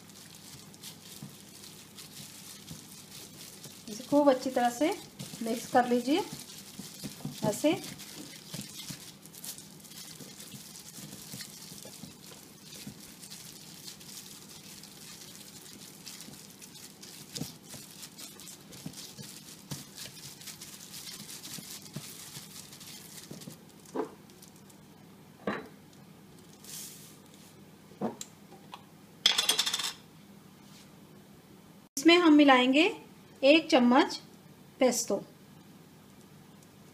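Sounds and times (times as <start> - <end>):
wet rubbing of marinade on chicken: 0.0 - 23.6
short rustle: 26.5 - 27.6.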